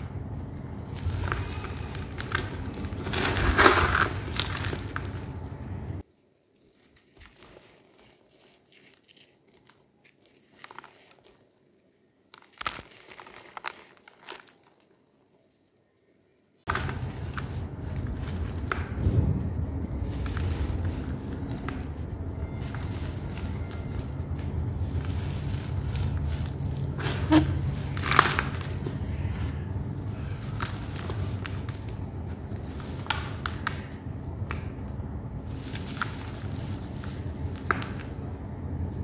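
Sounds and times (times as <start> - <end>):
powder pouring: 0.0 - 6.0
cement chunks crunching: 0.0 - 15.2, 16.7 - 39.0.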